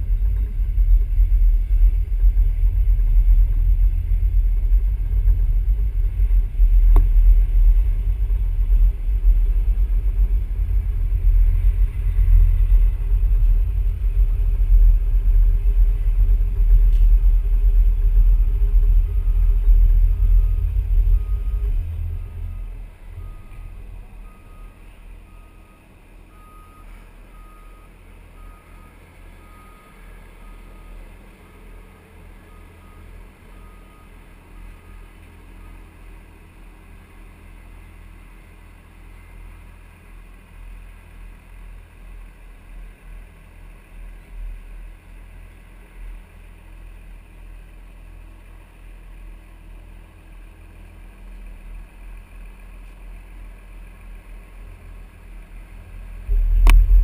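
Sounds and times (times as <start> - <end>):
steady low rumble: 0.0 - 57.0
vehicle reversing alarm beeping: 0.3 - 37.9.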